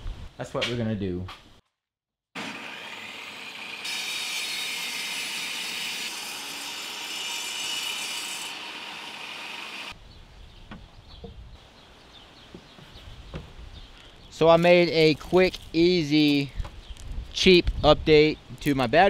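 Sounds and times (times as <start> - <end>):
saw blade cutting wood: 2.4 - 9.9
table saw whining: 2.4 - 9.9.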